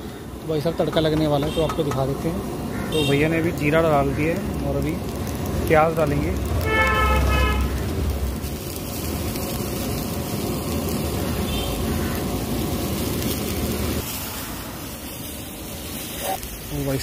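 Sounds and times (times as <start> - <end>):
onion and seeds sizzling: 0.0 - 17.0.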